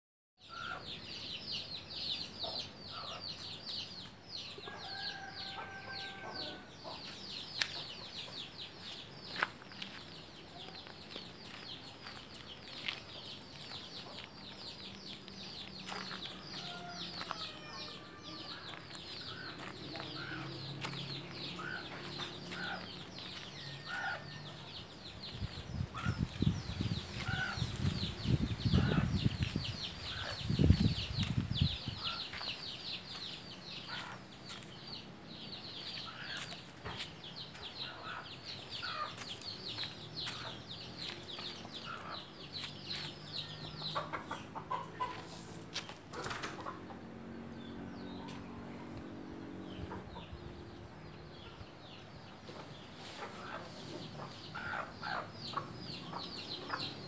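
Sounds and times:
birds chirping: 0.4s - 57.0s
chickens clucking: 35.8s - 47.3s, 52.4s - 57.0s.

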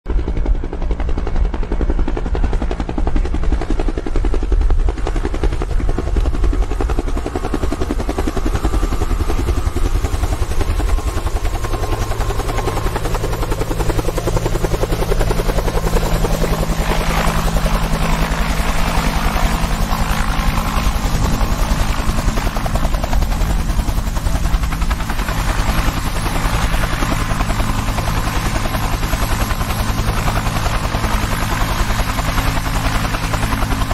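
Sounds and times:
helicopter rotor beat: 0.1s - 33.9s.

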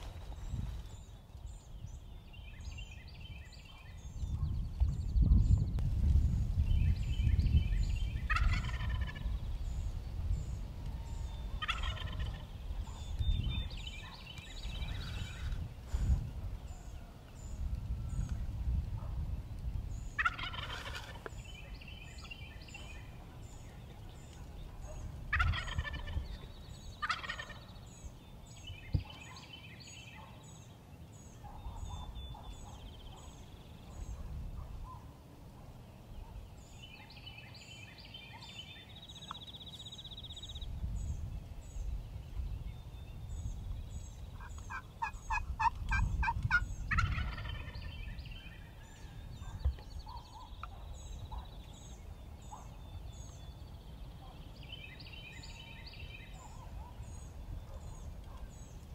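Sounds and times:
turkey gobbling: 8.3s - 9.3s, 11.6s - 12.4s, 20.2s - 21.2s, 25.3s - 26.2s, 27.0s - 27.6s, 44.5s - 47.8s.

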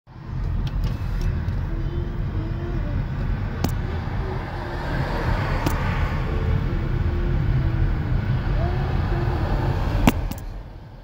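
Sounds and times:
engine and tyre rumble: 0.1s - 11.0s
sharp click: 3.6s - 3.8s, 10.1s - 10.5s.

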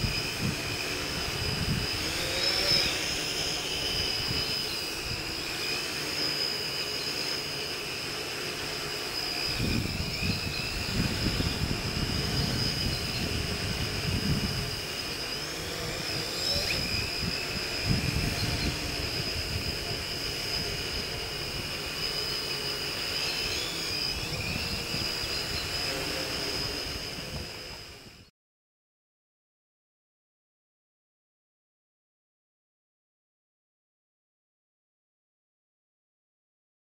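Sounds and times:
low rumbling wind gusts: 0.0s - 5.4s, 9.4s - 21.9s, 26.5s - 28.2s
drone propellers whining: 0.0s - 28.3s.

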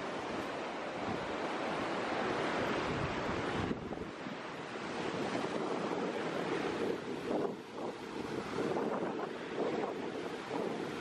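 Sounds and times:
ocean surf breaking: 0.0s - 11.0s
wind on microphone: 0.0s - 11.0s.

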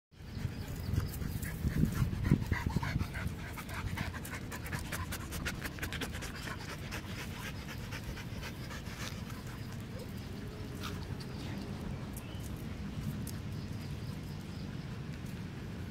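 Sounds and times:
dogs panting: 0.2s - 15.9s.

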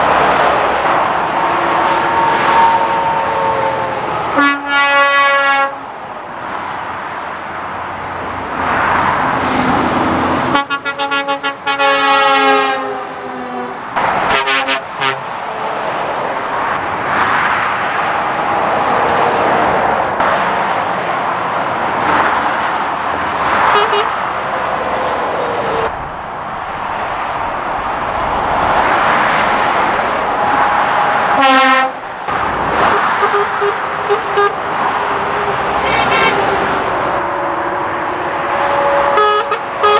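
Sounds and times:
traffic passing: 0.0s - 39.9s
vehicle horn blasts: 2.0s - 5.8s, 10.5s - 15.2s, 23.7s - 24.1s, 31.3s - 32.0s, 33.2s - 34.6s, 35.8s - 36.5s, 38.5s - 39.9s.

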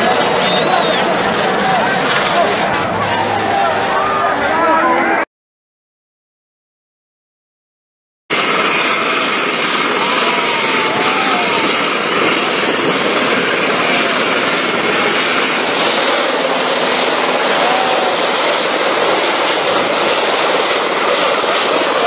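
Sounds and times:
helicopter turbine and rotor: 0.0s - 2.8s, 8.3s - 22.0s.

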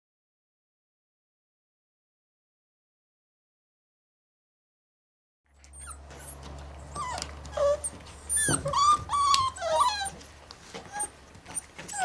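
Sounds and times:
puppies whining and yipping: 5.6s - 12.0s.

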